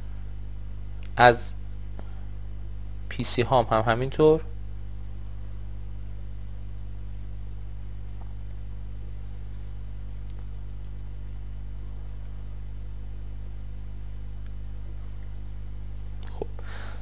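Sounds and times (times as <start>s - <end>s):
low electrical hum: 0.0s - 17.0s
faint click: 10.2s - 10.5s.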